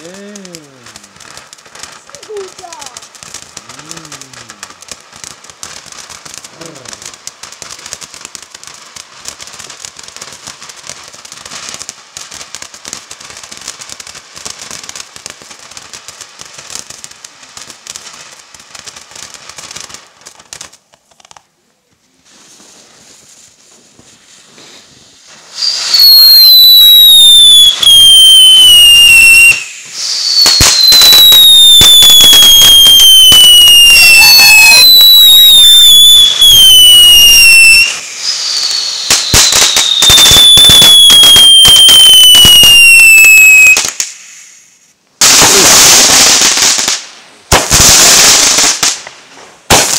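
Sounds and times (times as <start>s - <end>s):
firework fountain fizzing and crackling: 0.0s - 49.9s
firework whistles falling in pitch: 24.4s - 49.0s.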